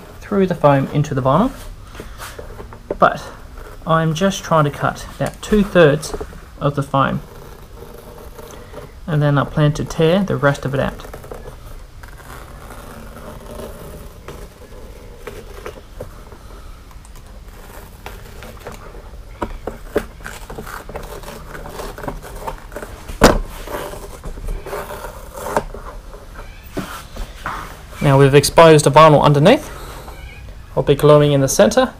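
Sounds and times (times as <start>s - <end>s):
foam tearing from vinyl: 3.2s - 16.0s, 17.2s - 28.2s
utility knife scraping through foam: 10.4s - 15.7s.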